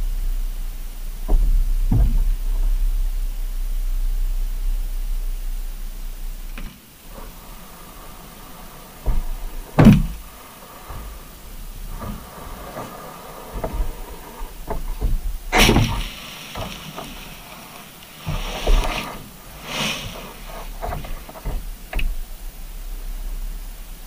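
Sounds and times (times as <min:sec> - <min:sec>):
knocks on underwater housing: 0:08.9 - 0:19.4.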